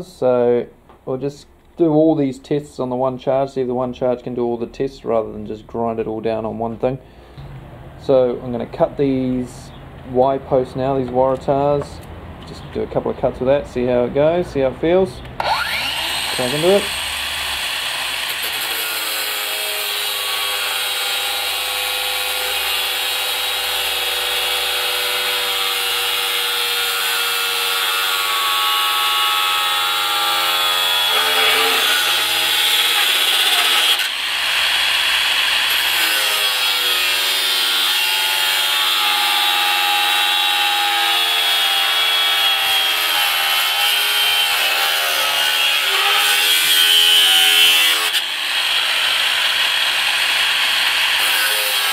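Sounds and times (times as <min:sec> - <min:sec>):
angle grinder cutting steel: 0:15.4 - 0:51.9.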